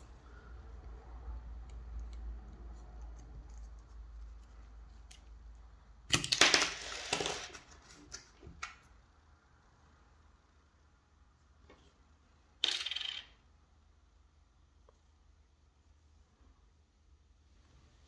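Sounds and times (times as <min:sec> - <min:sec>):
coin scraping plastic cover: 0:06.2 - 0:08.2.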